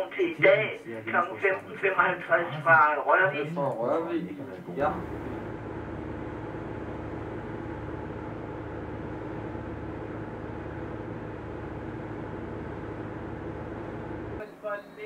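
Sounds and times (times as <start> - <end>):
ship engines humming: 4.7 - 14.5.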